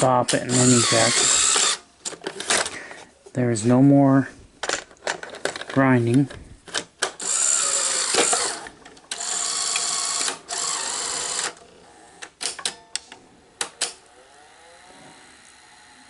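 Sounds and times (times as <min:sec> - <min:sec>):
tape deck motor whirring: 0:00.5 - 0:01.8, 0:07.2 - 0:12.4, 0:13.6 - 0:16.0.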